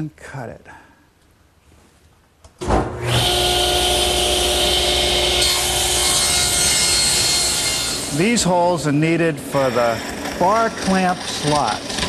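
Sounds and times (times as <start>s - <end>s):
table saw whining: 3.0s - 12.0s.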